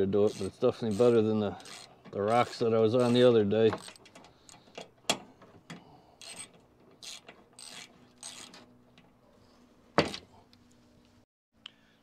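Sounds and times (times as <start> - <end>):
ratchet wrench clicking: 0.3 - 3.2, 6.2 - 8.6.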